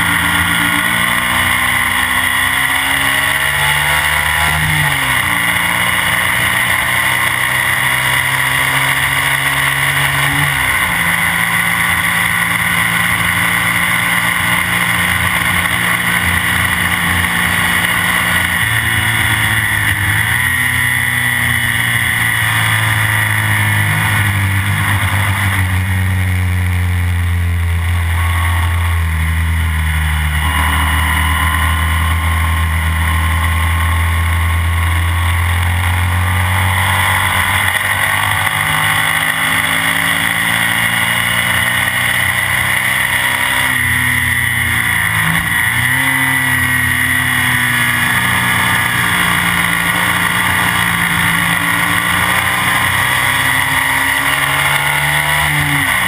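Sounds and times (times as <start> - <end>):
racing motorcycle engine at speed: 0.0 - 56.0
wind and road noise: 0.0 - 56.0.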